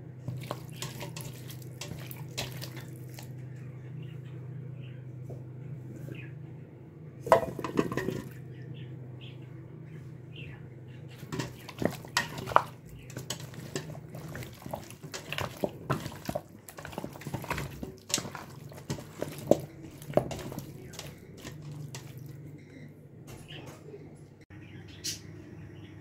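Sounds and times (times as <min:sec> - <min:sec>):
hands mixing raw chicken: 0:00.0 - 0:04.4, 0:07.2 - 0:08.7, 0:11.0 - 0:23.7
steady low hum: 0:00.0 - 0:26.0.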